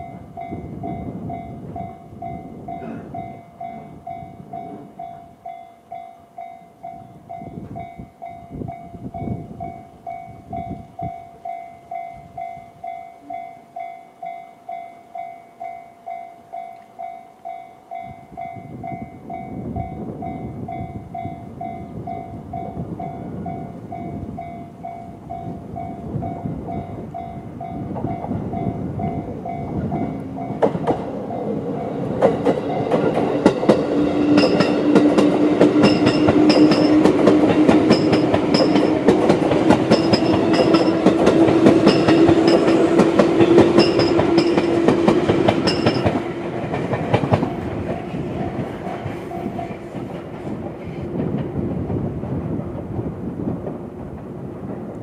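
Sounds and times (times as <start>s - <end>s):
train wheels clacking over rail joints: 31.9s - 52.8s.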